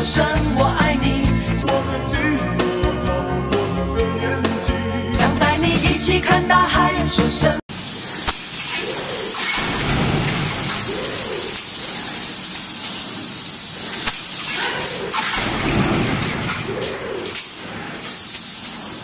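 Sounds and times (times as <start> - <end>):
stamping press machinery: 14.0 - 18.6.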